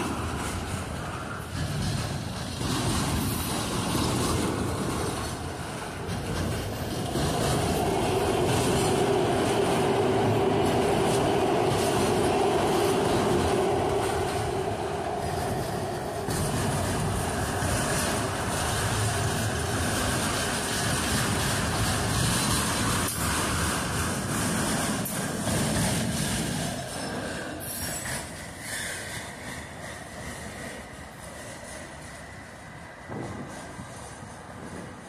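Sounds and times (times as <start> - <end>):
freight train wheels rumbling on rails: 0.0 - 35.0
train wheel squeal: 14.1 - 35.0.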